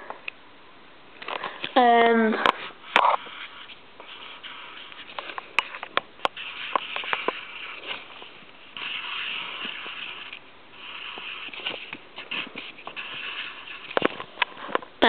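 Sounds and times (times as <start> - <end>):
finger rubbing on camera body: 2.7 - 14.7.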